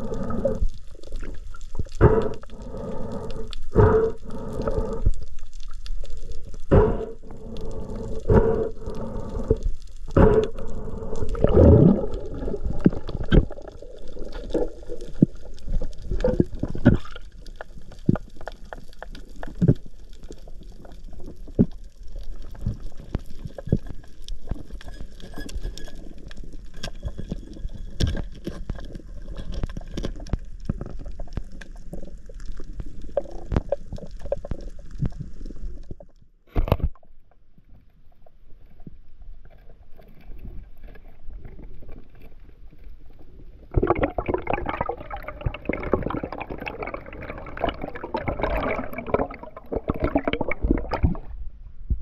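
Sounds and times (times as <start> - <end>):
muffled underwater water sounds: 0.0 - 52.0
sharp clicks and pops: 0.4 - 37.4.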